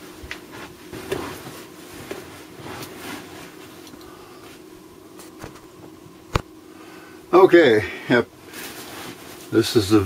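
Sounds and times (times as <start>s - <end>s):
faint hum: 0.0s - 10.0s
soft rustles: 0.2s - 5.8s.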